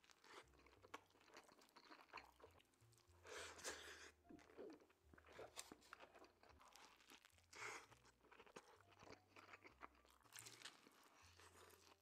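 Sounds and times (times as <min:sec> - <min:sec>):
chewing and crunching food: 0:00.0 - 0:12.0
bite into crisp food: 0:03.4 - 0:12.0.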